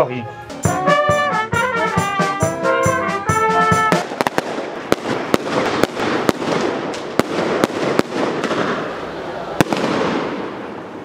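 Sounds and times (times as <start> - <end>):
band with trumpets and drums: 0.0 - 4.9
fireworks crackling: 0.6 - 11.0.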